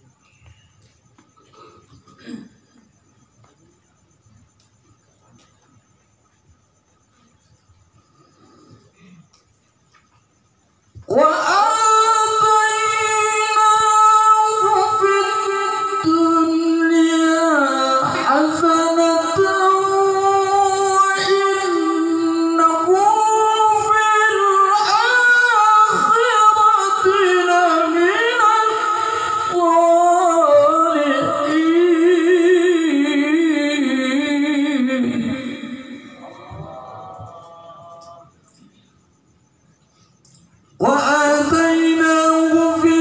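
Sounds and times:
man reciting melodically: 35.0 - 38.5.

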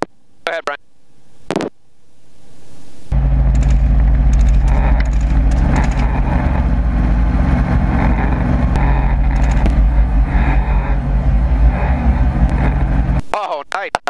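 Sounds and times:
helicopter engine and rotor: 3.1 - 13.2.

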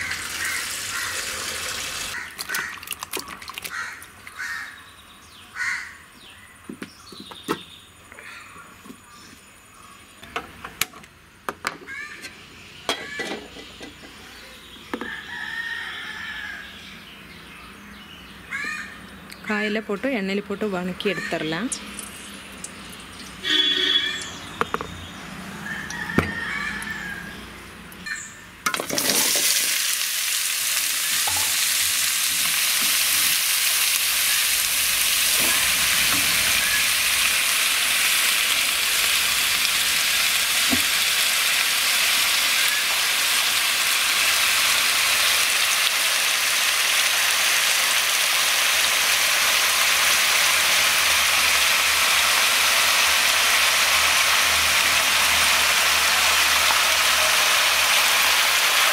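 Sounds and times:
vegetables sizzling in hot oil: 0.0 - 2.8, 21.0 - 24.8, 28.7 - 58.9.

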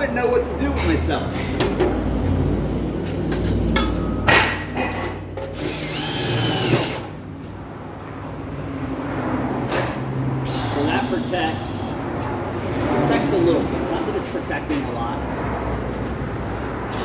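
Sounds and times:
cordless drill driving screws: 5.6 - 7.1.

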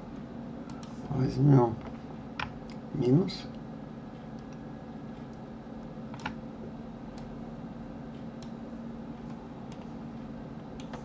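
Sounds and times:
steady low hum: 0.0 - 11.0
computer mouse clicks: 0.7 - 1.0, 10.7 - 11.0.

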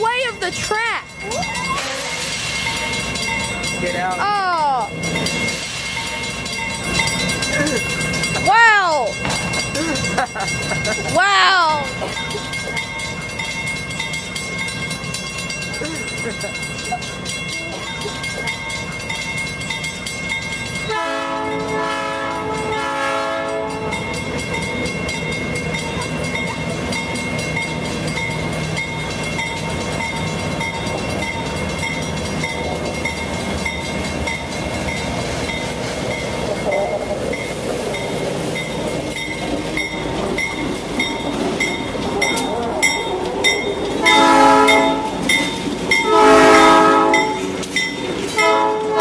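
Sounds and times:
crossing bell ringing: 0.0 - 49.0
train wheels rumbling on rails: 0.0 - 49.0
train horn: 20.9 - 24.0, 44.0 - 45.3, 46.0 - 47.6, 48.3 - 49.0.

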